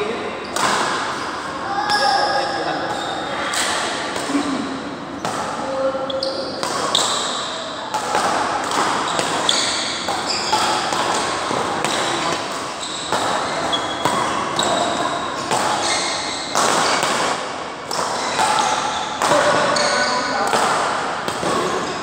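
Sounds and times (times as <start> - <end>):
rackets striking shuttlecock: 0.5 - 1.2, 6.6 - 22.0
shoes squeaking on court: 6.1 - 7.7, 8.8 - 17.0, 18.1 - 20.3.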